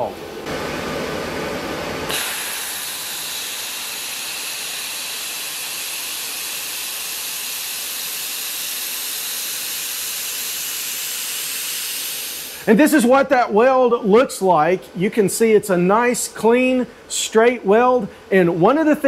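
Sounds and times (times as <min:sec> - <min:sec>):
laser welder hissing: 0:01.9 - 0:13.0.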